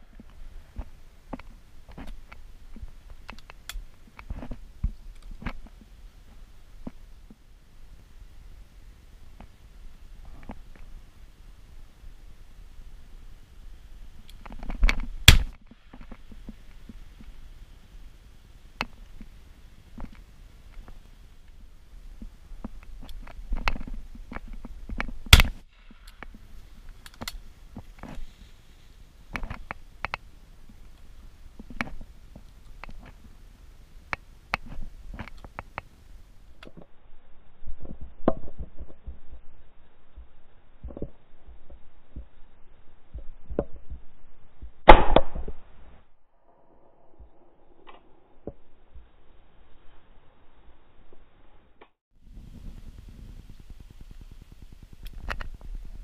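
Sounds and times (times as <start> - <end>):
shotgun shots: 44.9 - 45.4.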